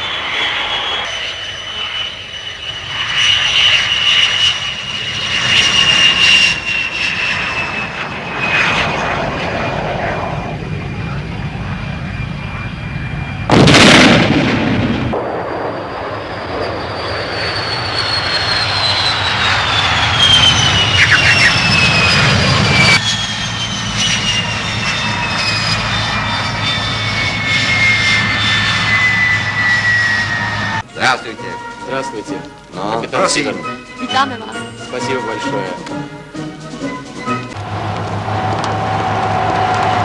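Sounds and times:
jet engine blast: 0:00.0 - 0:30.9, 0:37.3 - 0:40.0
high turbine whine: 0:00.0 - 0:35.3, 0:36.1 - 0:40.0
low rumble: 0:07.3 - 0:30.9.

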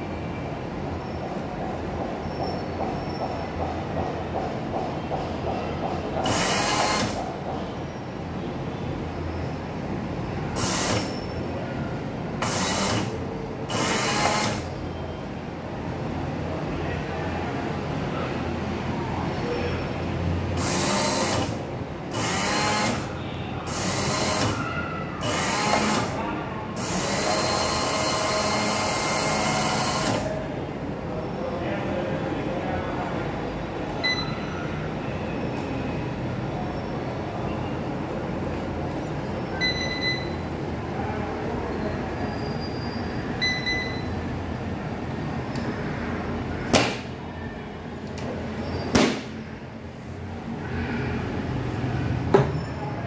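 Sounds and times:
baking machine mechanical whirring: 0:05.9 - 0:07.5, 0:10.4 - 0:11.5, 0:12.4 - 0:14.8, 0:20.6 - 0:30.4
electronic control panel beeps: 0:34.0 - 0:34.6, 0:39.5 - 0:40.6, 0:43.4 - 0:44.2.

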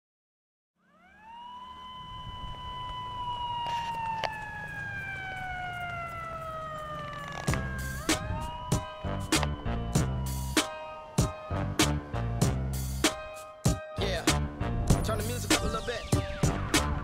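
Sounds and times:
siren-like tone sliding: 0:00.8 - 0:11.6
low steady bass: 0:07.6 - 0:10.6, 0:11.5 - 0:13.1, 0:14.0 - 0:15.8.

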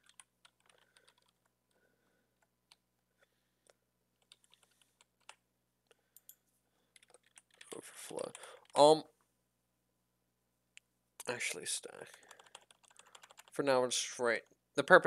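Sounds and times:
faint keyboard keystrokes: 0:00.0 - 0:01.5, 0:06.2 - 0:08.8, 0:12.0 - 0:13.6.

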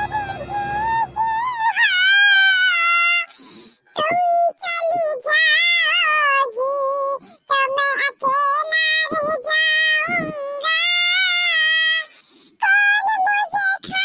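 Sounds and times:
high cartoon voice singing: 0:00.0 - 0:14.0.

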